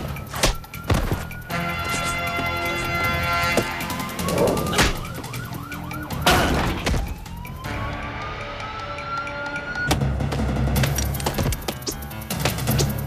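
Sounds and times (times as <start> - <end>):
siren wailing: 0.6 - 9.9.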